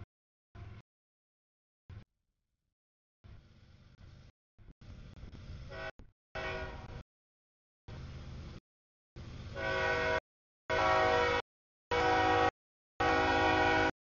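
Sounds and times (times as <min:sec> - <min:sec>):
diesel locomotive engine rumble: 0:03.2 - 0:07.0, 0:07.9 - 0:08.6, 0:09.2 - 0:14.0
multi-tone air horn: 0:05.7 - 0:07.0, 0:09.5 - 0:14.0.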